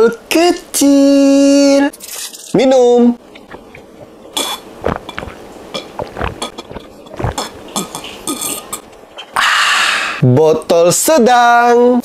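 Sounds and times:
person gulping water: 3.3s - 9.4s.

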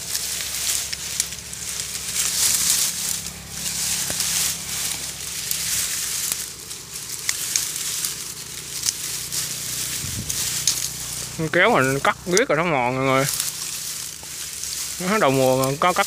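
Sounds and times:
dry reeds rustling: 0.0s - 16.0s
sharp clicks: 10.4s - 11.3s.

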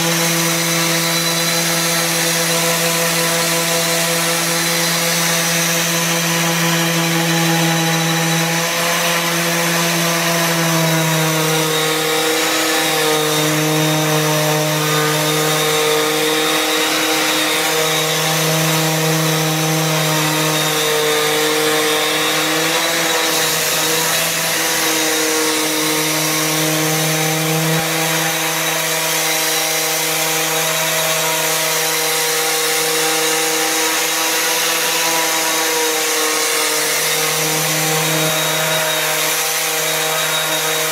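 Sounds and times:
orbital sander sanding wood: 0.0s - 40.9s.

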